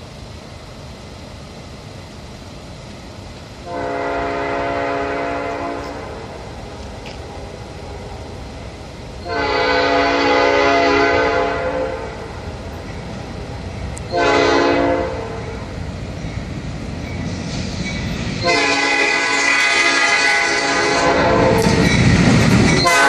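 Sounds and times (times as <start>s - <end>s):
train rumbling: 0.0s - 23.0s
locomotive air horn blasts: 3.6s - 6.3s, 9.2s - 12.3s, 14.1s - 15.6s, 18.4s - 21.8s, 22.8s - 23.0s.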